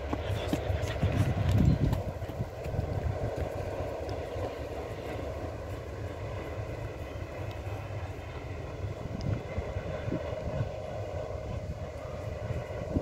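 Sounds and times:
wind noise on microphone: 0.0s - 5.2s, 8.5s - 13.0s
distant train rumbling: 0.0s - 13.0s.

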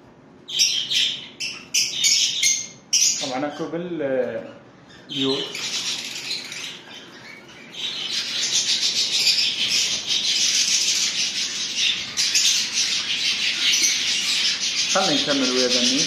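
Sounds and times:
lovebirds chirping: 0.4s - 16.0s.

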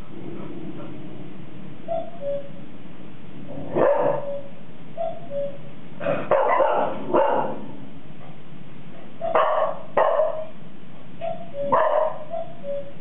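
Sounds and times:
puppies barking: 3.7s - 4.6s, 6.2s - 7.7s, 9.2s - 10.6s, 11.2s - 12.8s.

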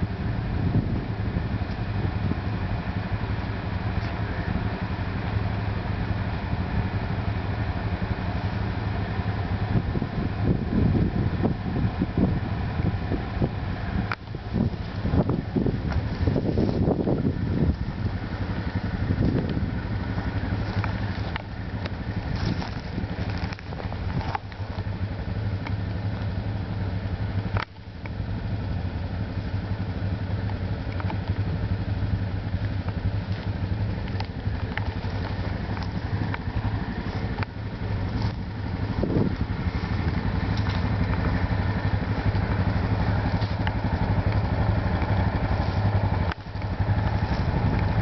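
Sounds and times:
engine idling: 0.0s - 48.0s
faint clicks: 27.5s - 28.2s, 32.6s - 37.8s.

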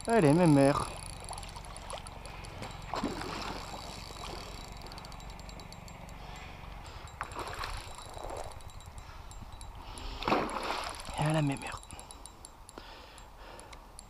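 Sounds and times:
steady low hum: 0.0s - 14.0s
fish splashing in water: 0.9s - 5.0s, 10.2s - 11.2s.

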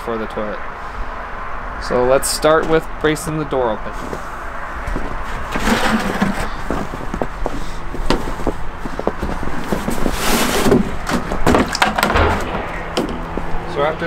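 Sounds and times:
footsteps in snow: 4.0s - 10.7s.

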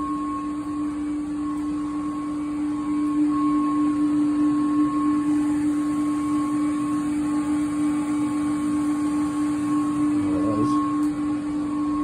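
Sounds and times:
water pumps humming: 0.0s - 12.0s.

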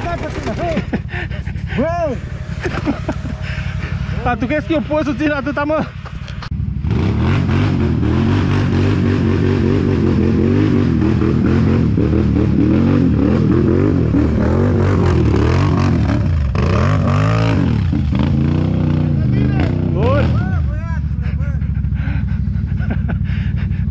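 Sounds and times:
quad bike engine revving: 0.0s - 23.9s.

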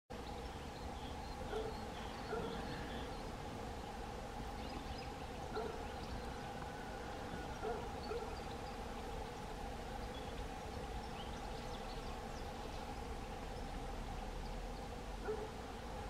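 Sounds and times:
small birds chirping: 0.1s - 16.0s.

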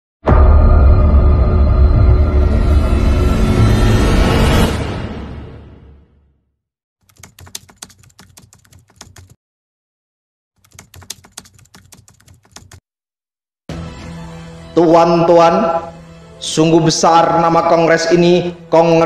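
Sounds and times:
music: 0.2s - 6.6s, 13.7s - 19.0s
rapid keyboard typing clicks: 7.0s - 9.4s, 10.6s - 12.8s.

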